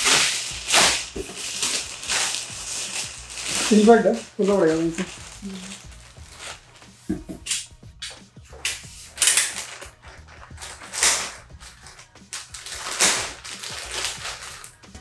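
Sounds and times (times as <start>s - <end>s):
plastic bag crinkling: 0.0s - 6.9s, 9.2s - 15.0s.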